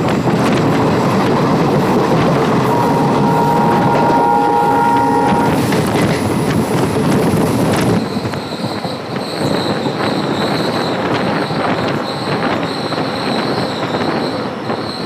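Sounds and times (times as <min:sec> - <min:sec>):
steady high whine: 0:00.0 - 0:06.6
rail clicks: 0:00.0 - 0:08.4
train rumble and rattle: 0:00.0 - 0:15.0
two-note tone: 0:00.7 - 0:06.2.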